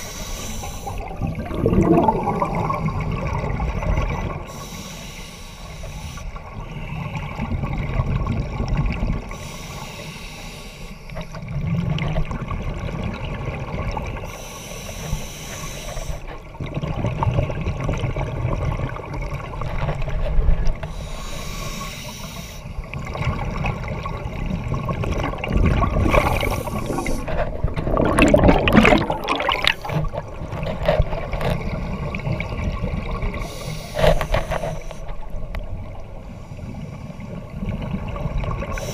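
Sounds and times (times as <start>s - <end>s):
regulator inhale hiss: 0.0s - 1.1s, 4.5s - 6.8s, 9.3s - 11.4s, 14.2s - 16.3s, 20.8s - 23.0s, 26.1s - 27.3s, 33.3s - 35.2s
exhaled bubbles gurgling: 0.0s - 4.8s, 6.4s - 9.5s, 11.2s - 14.5s, 15.6s - 20.8s, 22.8s - 38.9s
low rumble of water: 0.0s - 4.8s, 5.9s - 9.6s, 10.9s - 15.4s, 16.0s - 21.5s, 22.6s - 38.9s.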